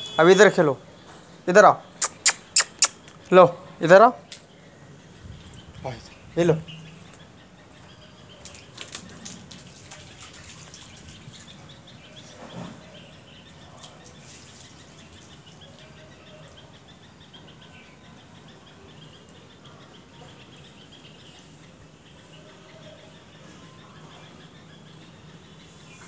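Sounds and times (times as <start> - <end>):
faint bird chirps: 0.0 - 26.0
sharp clicks: 2.0 - 3.3
water dripping: 8.4 - 11.7.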